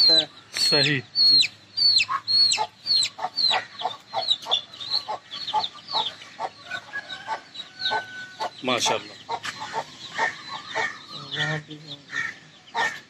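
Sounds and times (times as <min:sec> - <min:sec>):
chicks peeping: 0:00.0 - 0:13.0
hen clucking: 0:00.0 - 0:13.0.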